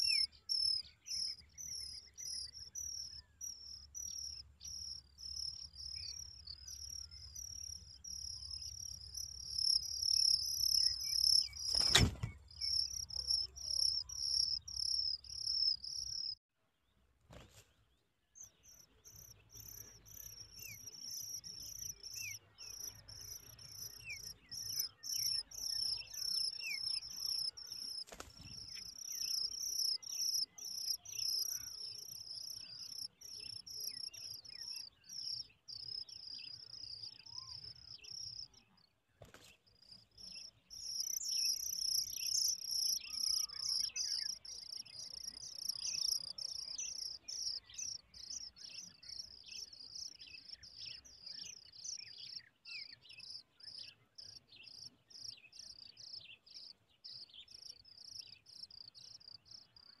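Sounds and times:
nestlings chirping: 0:00.0 - 0:16.4, 0:18.7 - 0:36.8, 0:39.3 - 0:48.5.

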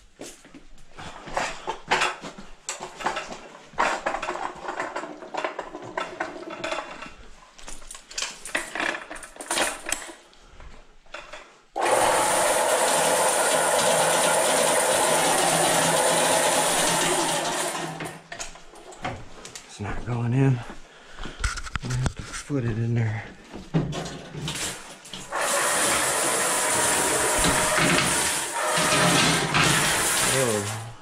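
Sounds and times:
electric motor running: 0:11.8 - 0:18.1, 0:25.3 - 0:30.9.

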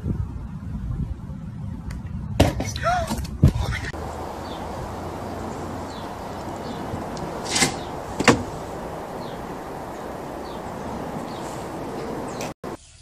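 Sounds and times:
background hiss: 0:04.0 - 0:13.0.

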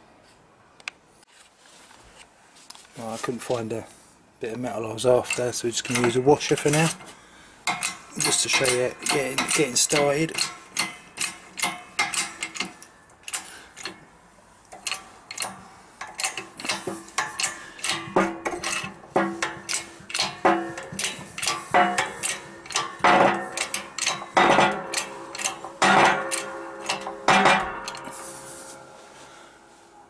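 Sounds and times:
metal clanks: 0:05.1 - 0:14.1, 0:14.7 - 0:29.3
hand pumped press clicking: 0:14.7 - 0:27.2.

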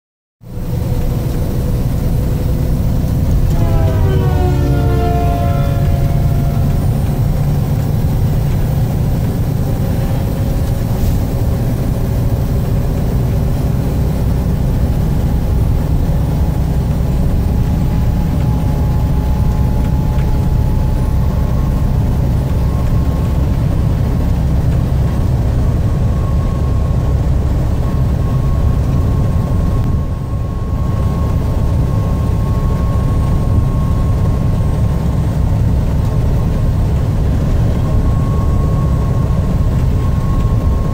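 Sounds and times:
faint whine: 0:00.4 - 0:40.9
vehicle engine and road rumble: 0:00.4 - 0:40.9.

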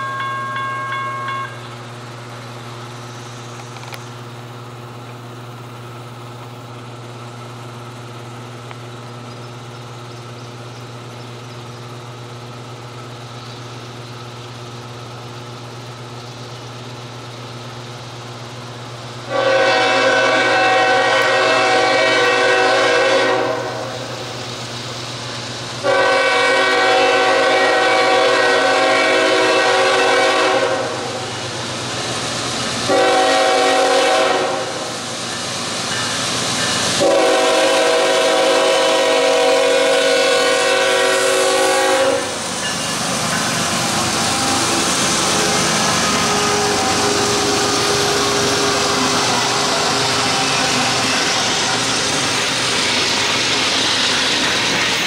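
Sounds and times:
train drone: 0:00.0 - 0:55.0
locomotive air horn blasts: 0:19.3 - 0:24.2, 0:25.8 - 0:31.3, 0:32.9 - 0:35.0, 0:37.0 - 0:42.4, 0:45.2 - 0:51.7.

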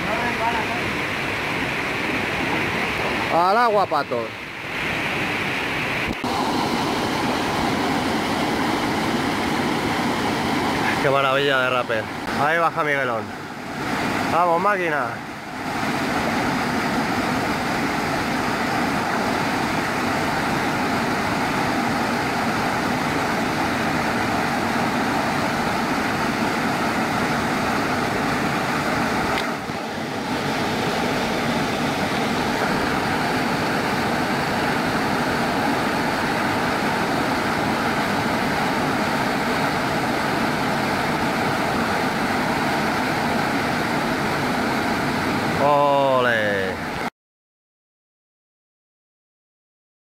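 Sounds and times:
waterfall rushing: 0:00.0 - 0:47.1.

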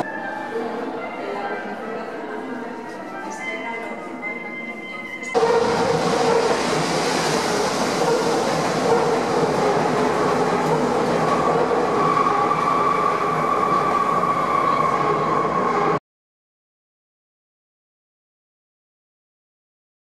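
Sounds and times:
train rushing through station: 0:00.0 - 0:01.6, 0:05.2 - 0:16.0.

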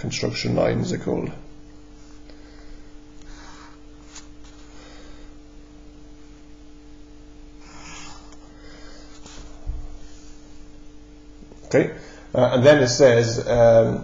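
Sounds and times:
faint steady hum: 0:00.0 - 0:14.0
pencil scratching on paper: 0:07.6 - 0:08.4.

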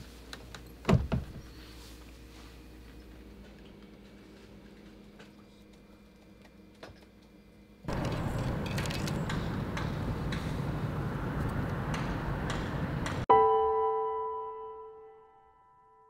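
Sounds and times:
rushing outdoor noise: 0:07.9 - 0:13.2.

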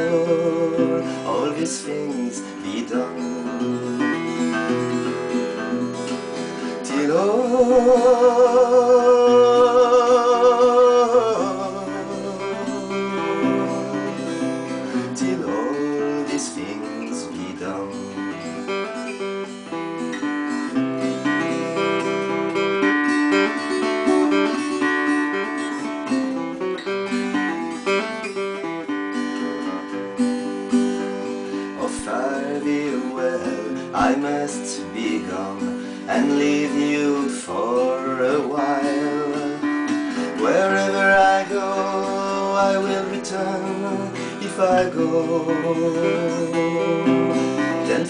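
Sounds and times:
man singing with vibrato: 0:00.0 - 0:18.8, 0:31.2 - 0:48.0
plucked acoustic guitar: 0:00.0 - 0:48.0.

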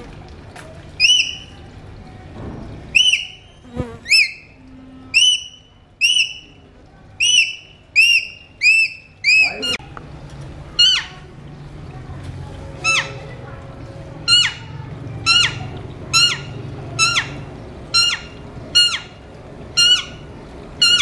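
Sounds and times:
parakeets calling: 0:01.0 - 0:01.5, 0:03.0 - 0:03.5, 0:07.2 - 0:09.8, 0:10.8 - 0:11.2, 0:12.8 - 0:13.3, 0:14.2 - 0:21.0.

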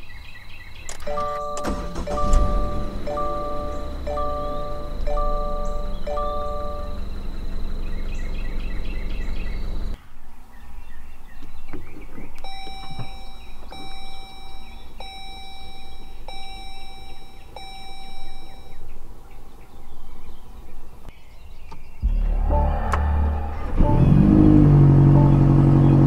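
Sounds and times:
car dashboard chime: 0:01.0 - 0:07.8, 0:12.4 - 0:18.9
car engine idling: 0:01.0 - 0:10.0, 0:22.1 - 0:26.0.

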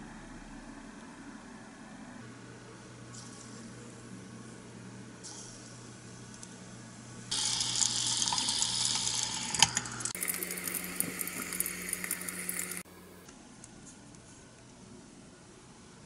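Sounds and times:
hot oil sizzling and crackling: 0:07.3 - 0:12.9.

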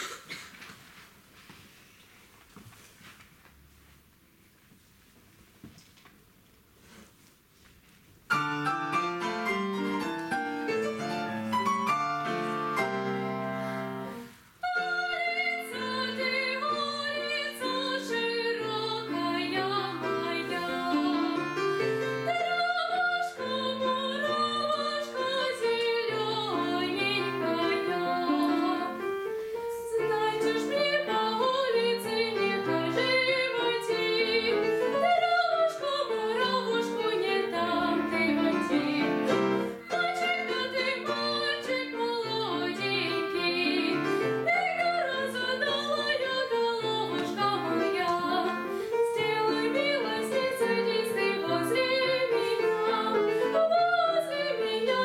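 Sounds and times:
grand piano playing: 0:08.3 - 0:55.0
girl singing: 0:14.6 - 0:21.6, 0:22.3 - 0:29.1, 0:29.7 - 0:39.2, 0:39.8 - 0:55.0.

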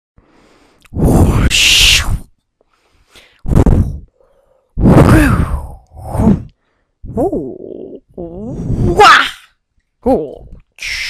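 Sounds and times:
person making mouth whooshes: 0:00.8 - 0:02.3, 0:03.4 - 0:04.1, 0:04.8 - 0:09.0.

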